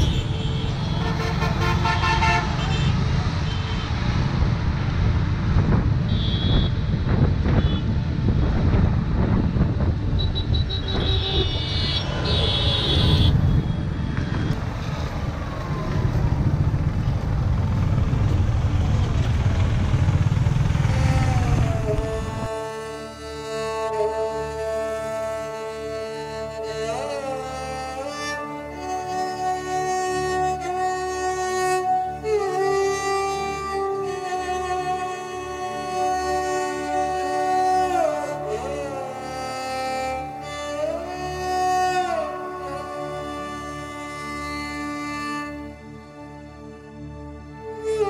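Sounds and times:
road traffic noise: 0:00.0 - 0:48.0
wind on microphone: 0:04.2 - 0:18.7, 0:20.9 - 0:22.5
music of long held notes: 0:13.6 - 0:48.0.

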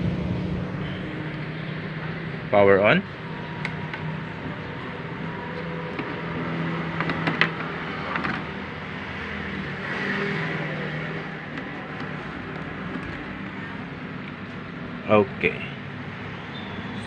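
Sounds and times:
vehicle passing: 0:00.0 - 0:14.8
vehicle engine running: 0:03.1 - 0:15.0.

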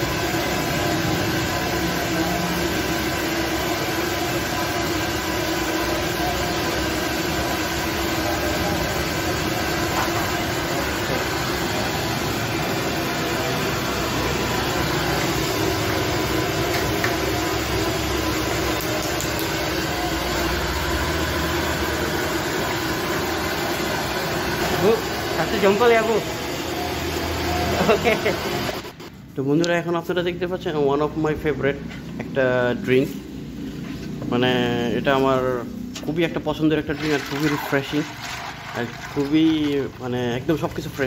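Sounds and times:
oil sizzling in a wok: 0:00.0 - 0:25.4
gas burner rushing: 0:00.0 - 0:29.1, 0:34.6 - 0:41.0.

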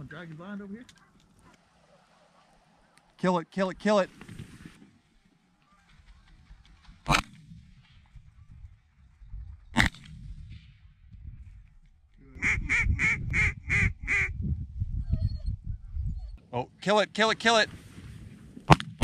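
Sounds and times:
low wind rumble: 0:05.8 - 0:19.0.

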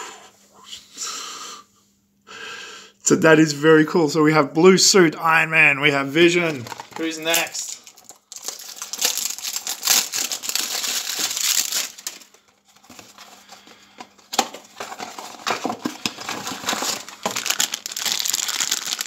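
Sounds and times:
packaging clicks: 0:06.5 - 0:19.0
plastic wrapping crinkling and tearing: 0:06.5 - 0:19.0.

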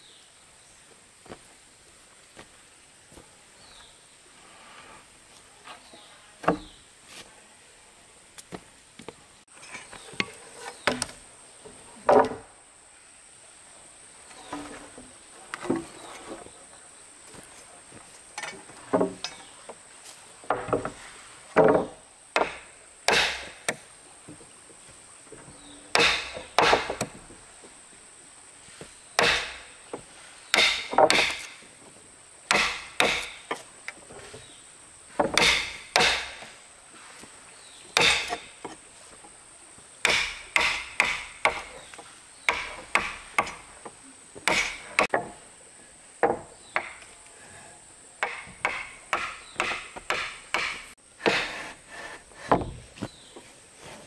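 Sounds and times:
tool chopping timber: 0:21.6 - 0:23.8, 0:25.9 - 0:27.2, 0:29.2 - 0:29.7, 0:30.5 - 0:31.6, 0:32.5 - 0:33.6, 0:35.2 - 0:36.5, 0:38.0 - 0:38.7, 0:40.0 - 0:41.9, 0:42.5 - 0:43.7, 0:44.4 - 0:45.3, 0:48.2 - 0:51.8.

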